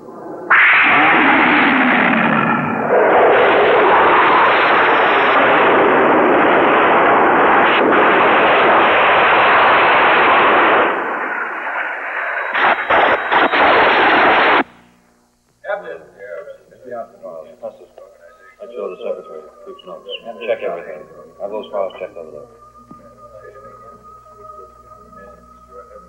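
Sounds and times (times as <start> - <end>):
explosions and gunfire: 0.5 - 14.7
jet fighter rushing: 0.5 - 14.7.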